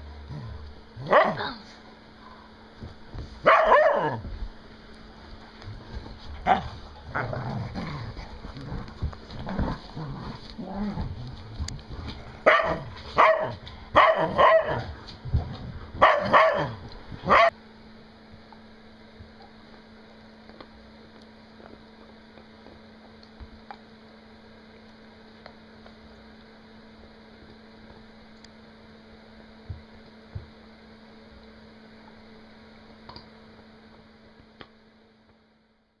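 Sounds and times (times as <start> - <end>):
steady low hum: 0.0 - 36.0
dog barking: 1.0 - 1.4, 3.4 - 4.2, 12.4 - 14.9, 16.0 - 17.5.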